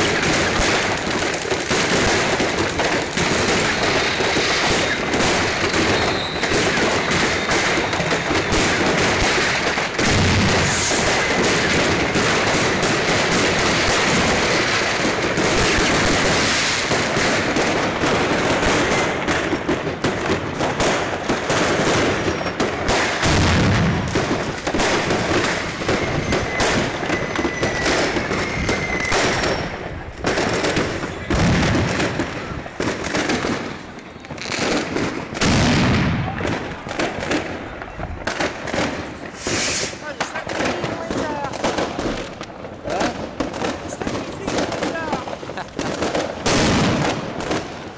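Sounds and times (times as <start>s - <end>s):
deep firework booms: 0.0s - 47.9s
fireworks crackling bangs: 0.0s - 47.9s
thin firework whistles: 3.8s - 8.8s, 10.4s - 11.6s, 25.4s - 29.8s, 39.2s - 40.4s.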